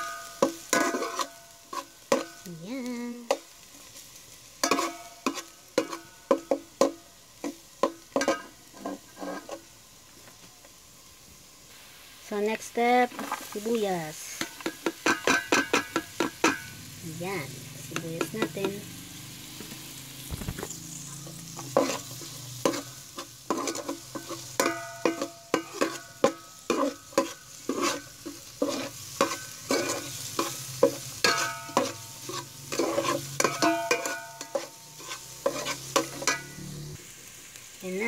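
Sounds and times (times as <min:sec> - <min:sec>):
onions sizzling in oil: 0:00.0 - 0:38.0
metal spoon scraping metal pot: 0:00.7 - 0:02.3, 0:08.2 - 0:09.6, 0:21.6 - 0:36.6.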